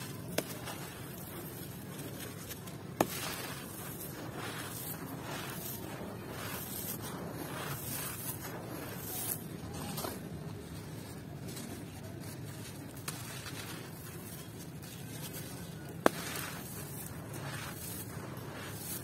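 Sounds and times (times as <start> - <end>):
hands crushing sand and cement: 0.0 - 19.0
sand pouring through fingers: 0.0 - 19.0
sharp crack: 16.0 - 16.6.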